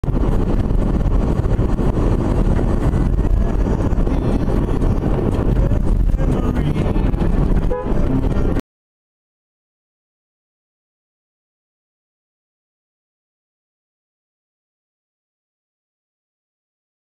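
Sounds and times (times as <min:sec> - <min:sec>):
engine and road noise in car: 0:00.0 - 0:08.6.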